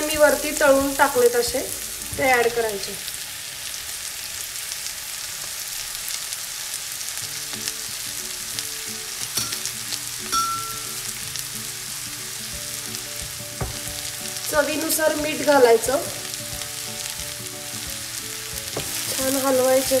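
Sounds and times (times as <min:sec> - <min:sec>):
vegetables sizzling in a frying pan: 0:00.0 - 0:20.0.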